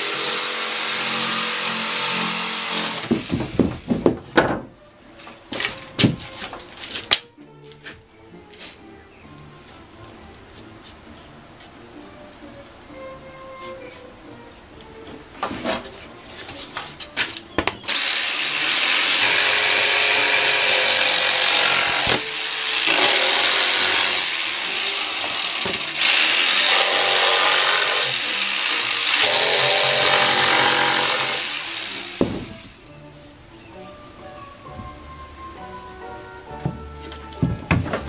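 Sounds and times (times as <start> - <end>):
power tool cutting plywood: 0.0 - 3.7, 17.9 - 32.8
plywood knocks: 3.0 - 4.8, 32.2 - 32.6, 37.4 - 38.0.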